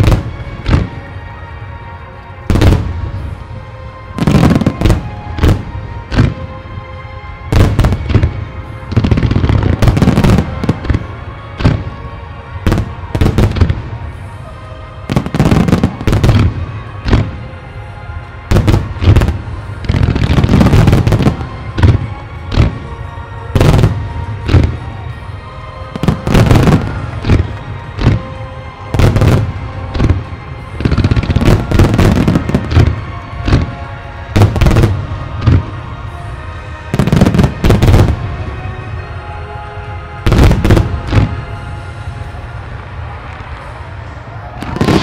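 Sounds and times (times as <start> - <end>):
fireworks booming and crackling: 0.0 - 45.0
music playing: 0.0 - 45.0.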